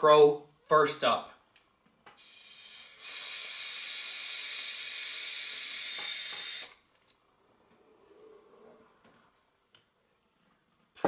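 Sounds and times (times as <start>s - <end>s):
hiss of air through vape tank: 2.1s - 6.8s.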